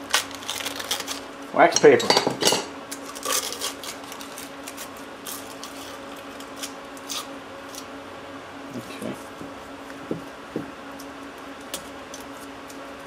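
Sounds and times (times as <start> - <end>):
wax paper crinkling: 0.0 - 1.3, 2.9 - 7.9.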